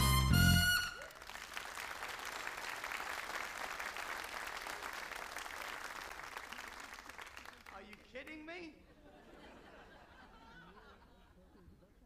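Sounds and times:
audience applauding: 0.8s - 8.1s.

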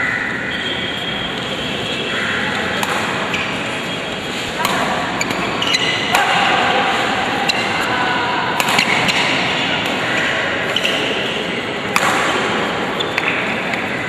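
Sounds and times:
indoor hall noise: 0.0s - 14.0s
shoes squeaking on court: 1.0s - 6.1s, 12.9s - 13.9s
rackets striking shuttlecock: 2.5s - 3.8s, 4.4s - 7.9s, 8.5s - 14.0s.

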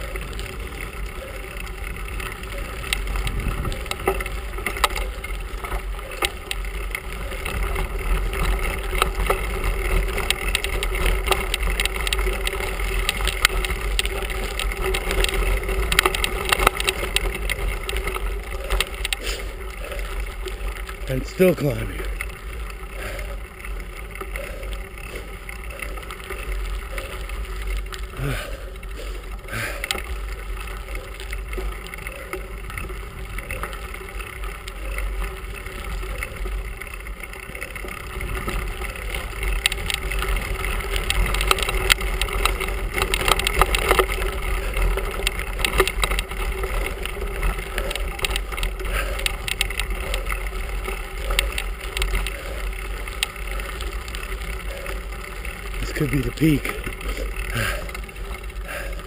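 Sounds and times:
wind rumble on microphone: 0.0s - 21.0s
tyres rattling on gravel: 0.0s - 59.0s.

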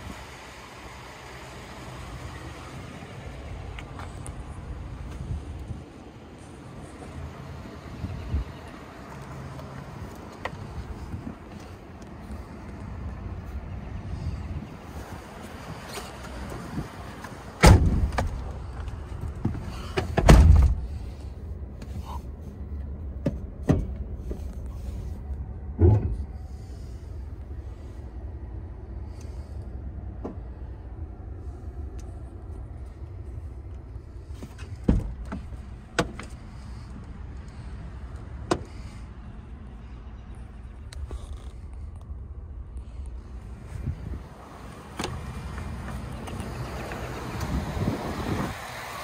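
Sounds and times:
low steady rumble: 0.0s - 48.6s
knocks and thumps in truck cab: 17.6s - 18.4s, 19.4s - 21.0s, 25.7s - 26.3s, 34.5s - 36.4s.

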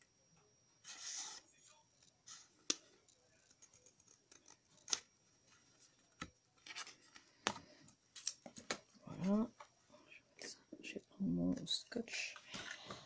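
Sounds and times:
card rubbing: 0.8s - 1.5s.

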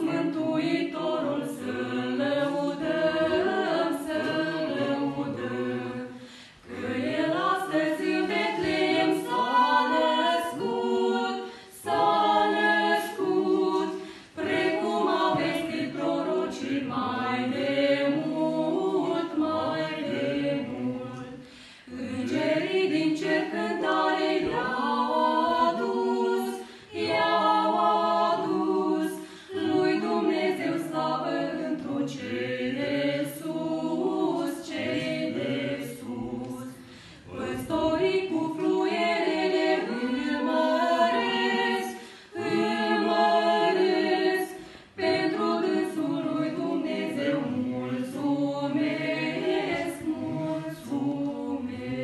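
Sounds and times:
vocal group singing a cappella: 0.0s - 52.0s.

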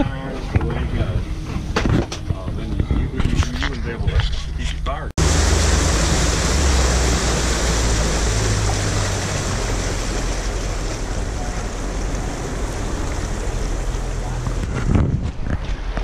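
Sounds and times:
motorboat engine hum: 0.0s - 16.0s
rush of wind and water: 5.2s - 16.0s.

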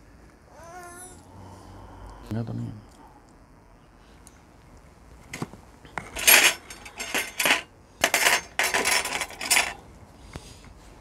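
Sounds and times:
metal skewers clinking and scraping: 6.0s - 9.8s.

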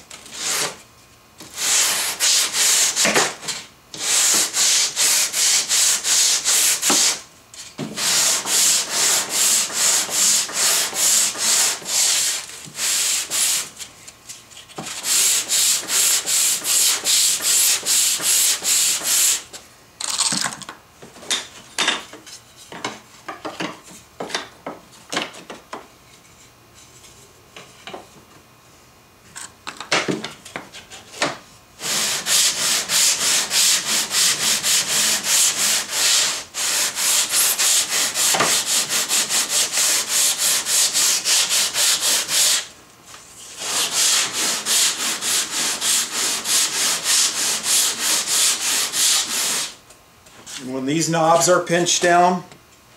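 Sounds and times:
sanding block on wood: 1.6s - 3.2s, 4.0s - 7.2s, 8.0s - 13.7s, 14.9s - 19.5s, 31.8s - 42.7s, 43.5s - 49.8s.

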